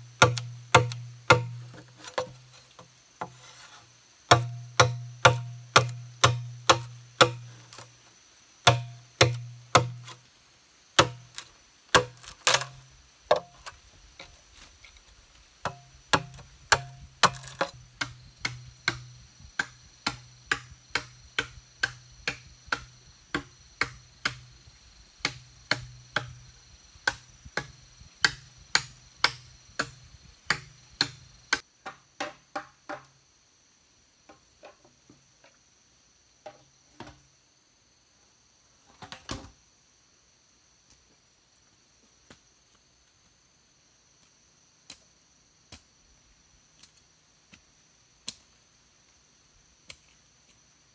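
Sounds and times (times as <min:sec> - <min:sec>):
machete chopping bamboo: 0:00.1 - 0:02.5, 0:04.3 - 0:07.9, 0:08.6 - 0:10.2, 0:11.0 - 0:13.7, 0:15.6 - 0:24.5, 0:25.2 - 0:26.4, 0:27.0 - 0:33.1.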